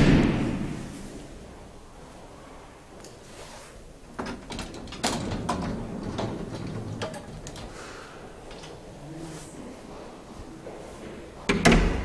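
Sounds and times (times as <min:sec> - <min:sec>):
elevator doors sliding and latching: 0:03.9 - 0:09.2.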